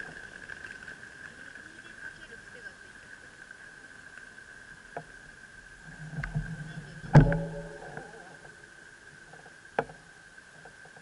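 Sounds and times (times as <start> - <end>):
steady high-pitched whine: 0.0 - 11.0
sharp knock with humming ring: 7.1 - 8.1.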